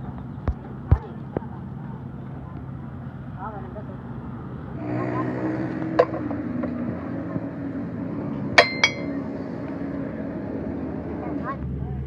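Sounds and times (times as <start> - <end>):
heavy steel parts clinking: 8.6 - 9.2.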